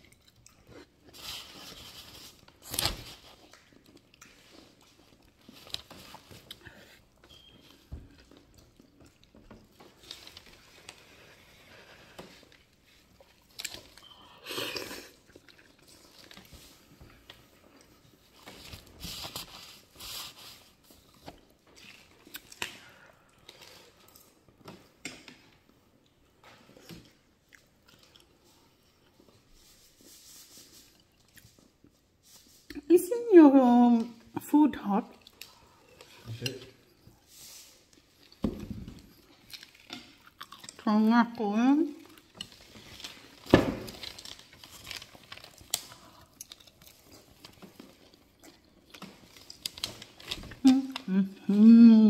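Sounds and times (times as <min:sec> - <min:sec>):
person chewing and lip smacking: 0:00.0 - 0:01.1, 0:13.2 - 0:16.5, 0:21.1 - 0:22.8, 0:39.0 - 0:40.8.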